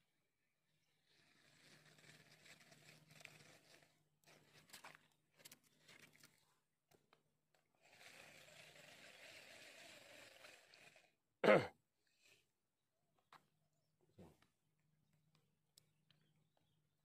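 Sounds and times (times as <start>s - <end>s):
faint scrapes and clicks: 1.0s - 11.2s.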